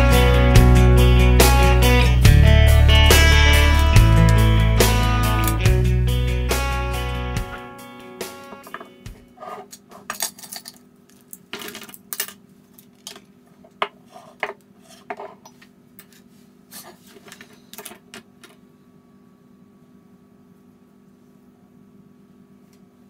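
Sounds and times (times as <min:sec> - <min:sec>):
objects clinking on wooden desk: 0:08.6 - 0:15.6.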